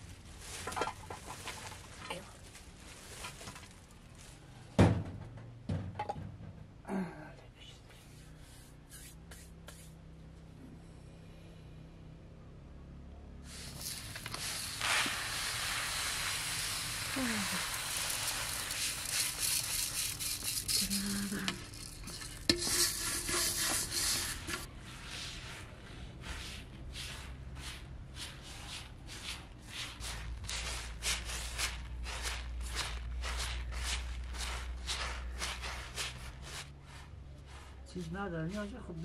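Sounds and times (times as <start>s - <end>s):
hands sweeping rice: 8.0s - 10.0s, 13.5s - 38.7s
rice grains hissing: 13.5s - 27.5s, 29.7s - 36.7s.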